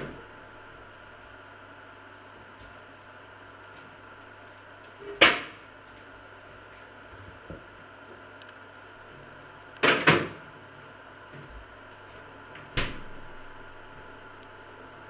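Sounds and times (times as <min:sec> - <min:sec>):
steady hum: 0:00.0 - 0:15.0
sharp kitchen knocks: 0:09.8 - 0:10.4.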